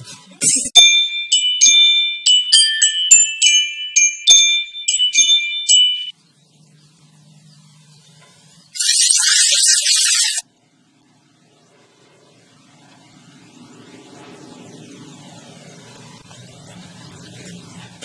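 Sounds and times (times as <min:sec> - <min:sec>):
bell-like chime melody: 0:00.8 - 0:06.2
water spraying from hose nozzle: 0:08.8 - 0:10.4.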